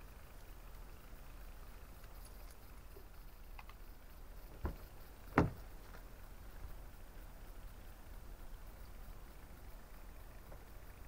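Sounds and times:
car door clunks: 4.6 - 5.6.

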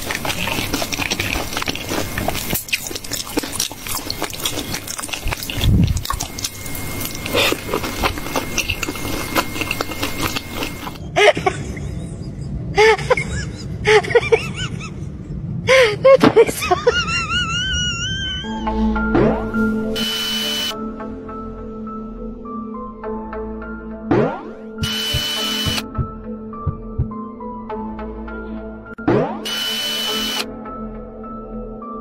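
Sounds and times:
toddler chewing and smacking: 0.0 - 11.0.

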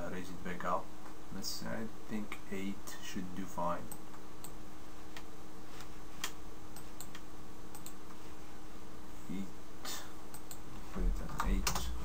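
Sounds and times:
faint electrical hum: 0.0 - 12.0
mouse clicks and keystrokes: 6.2 - 8.0, 10.3 - 10.6.

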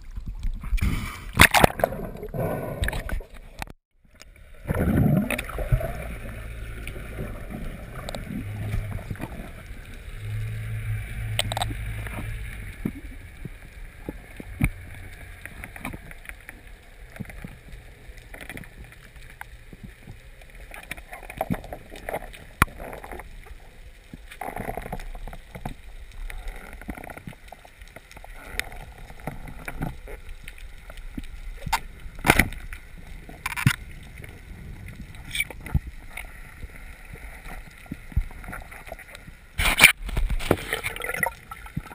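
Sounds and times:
muffled underwater wash: 0.0 - 41.9
low hum: 4.2 - 17.0.

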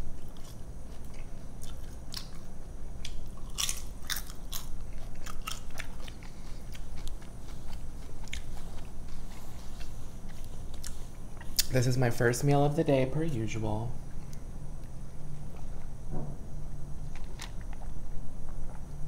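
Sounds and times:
chip crunching: 0.0 - 11.9.

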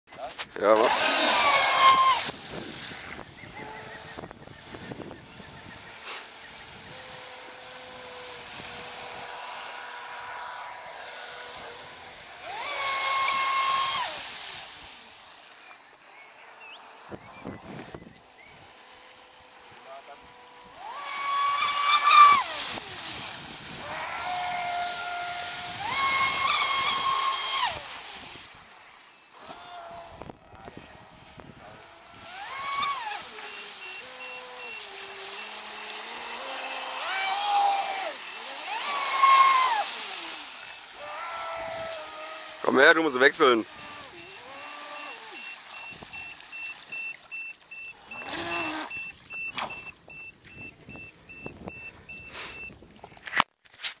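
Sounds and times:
speedboat rushing past: 0.6 - 15.4, 16.3 - 47.2
electric motor whine: 0.8 - 14.2, 16.4 - 28.3, 29.3 - 46.5, 47.9 - 49.7
water spray hiss: 6.0 - 6.4
rapid electronic alarm beeping: 44.2 - 48.3, 48.9 - 52.7.

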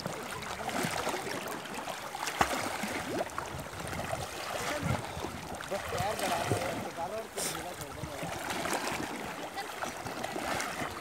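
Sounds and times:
water splashing and lapping: 0.0 - 11.0.

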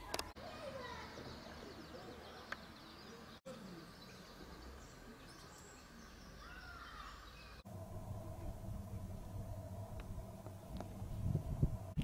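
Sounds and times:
bird calls and chirps: 0.7 - 7.6.

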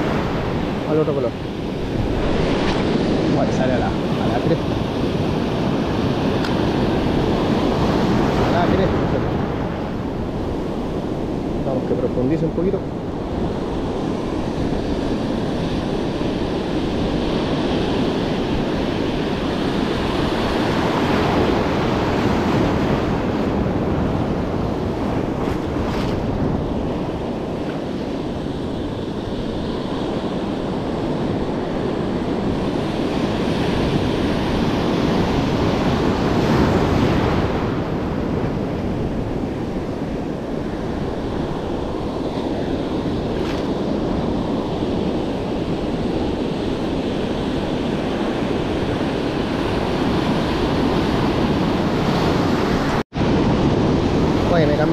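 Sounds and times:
surf breaking on beach: 0.0 - 54.9
wind buffeting microphone: 0.0 - 54.9.

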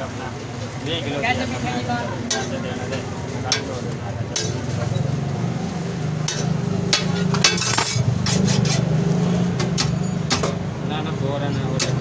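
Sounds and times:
metal spatula scraping griddle: 3.5 - 5.2, 5.9 - 9.0.

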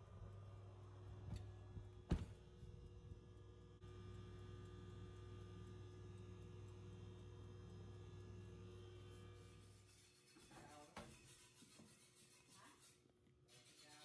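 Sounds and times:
low electrical hum: 0.0 - 10.1.

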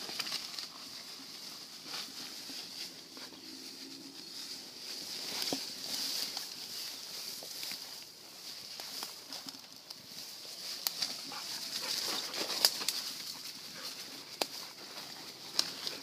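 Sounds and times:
leaves rustling: 0.0 - 16.0
twigs snapping: 10.7 - 13.4.

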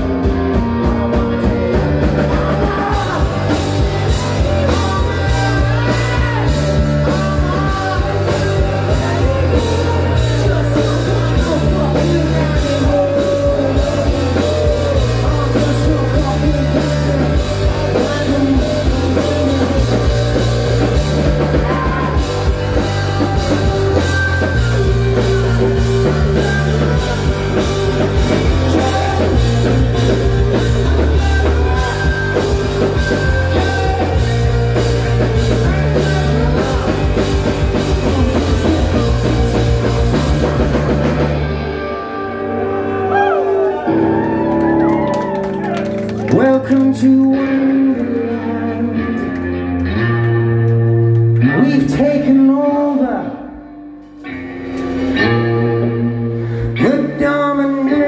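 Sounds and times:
steady drum beat: 0.0 - 41.7
bass line: 0.0 - 58.0
live rock band playing: 0.0 - 58.0
vocals: 0.0 - 58.0.

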